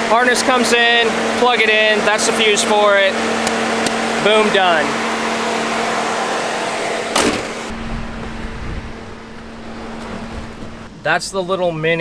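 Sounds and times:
air conditioning hiss: 0:00.0 - 0:12.0
truck engine idling: 0:07.2 - 0:11.0.

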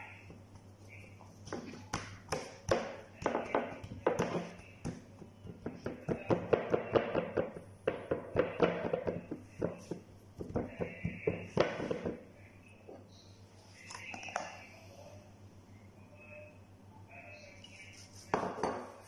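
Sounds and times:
fingertips patting dough in pan: 0:01.4 - 0:12.2.

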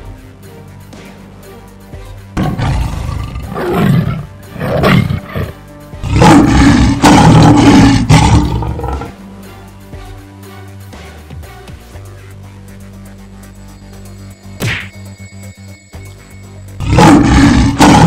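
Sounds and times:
background music: 0:00.0 - 0:18.0
big cat roaring: 0:02.4 - 0:09.2, 0:16.8 - 0:18.0.

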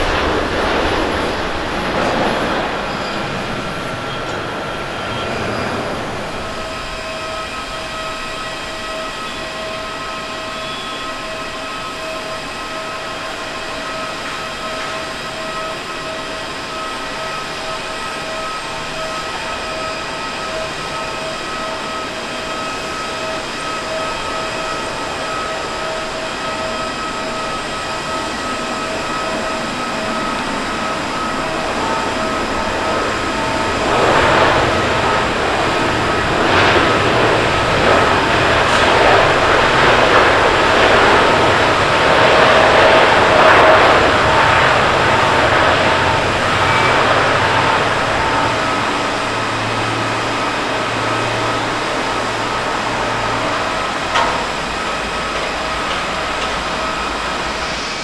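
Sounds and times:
jet engines whining: 0:00.0 - 0:58.0
jet noise rushing: 0:29.1 - 0:58.0.

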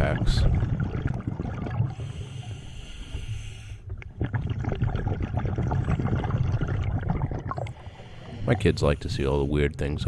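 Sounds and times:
bubbles gurgling underwater: 0:00.0 - 0:02.1, 0:03.9 - 0:08.8
regulator inhalation hiss: 0:02.0 - 0:03.8.

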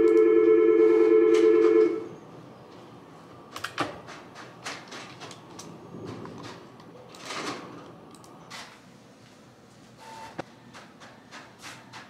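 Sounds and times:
desk telephone ringing: 0:00.0 - 0:02.1.

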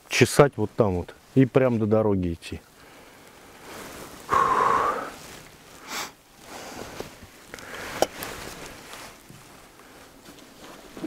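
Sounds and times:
loud breath or sniff: 0:02.8 - 0:07.0
clothing rustling: 0:03.4 - 0:04.4, 0:05.1 - 0:11.0
footsteps crunching through snow: 0:03.6 - 0:11.0.

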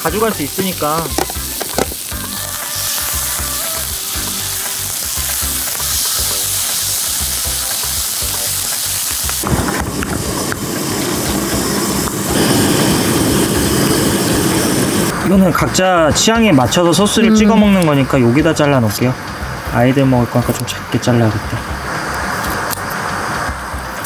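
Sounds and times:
food sizzling in a pan: 0:00.0 - 0:15.2.

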